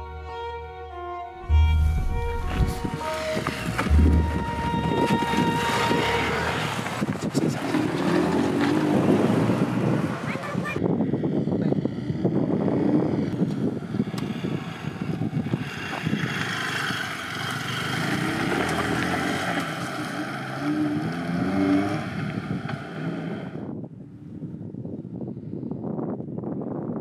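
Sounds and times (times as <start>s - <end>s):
vehicle engine running: 1.4s - 6.9s
wind rushing over microphone: 1.4s - 17.3s, 21.0s - 27.0s.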